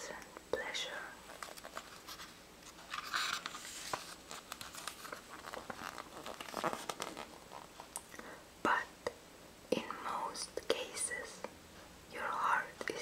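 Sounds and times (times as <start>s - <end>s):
page turning swish: 1.3s - 7.7s
paper pages crinkling: 1.3s - 7.9s.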